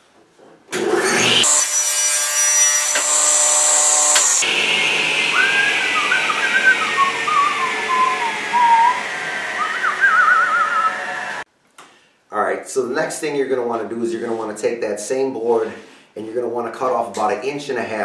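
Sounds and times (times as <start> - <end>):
power saw whining: 0.8 - 11.5
person whistling: 5.3 - 11.2.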